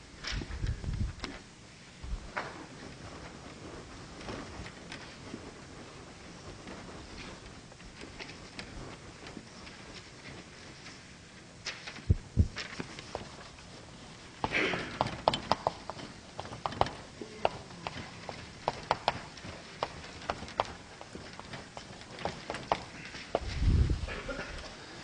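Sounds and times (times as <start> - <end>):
taps and clicks of writing on board: 14.4 - 20.8.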